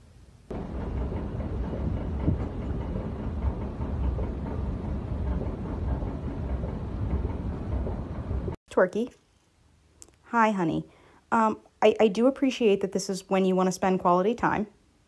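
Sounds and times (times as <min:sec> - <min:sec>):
escalator rumbling: 0:00.5 - 0:08.6.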